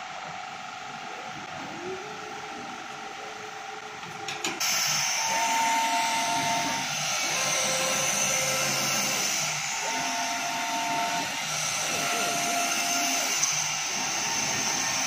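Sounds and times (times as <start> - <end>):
cutting machine whirring: 4.2 - 15.0.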